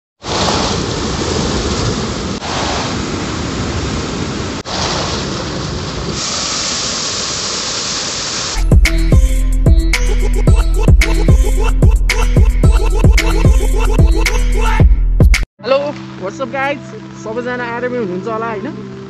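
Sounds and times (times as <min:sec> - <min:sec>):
floodwater rushing down rocky channel: 0:00.2 - 0:08.6.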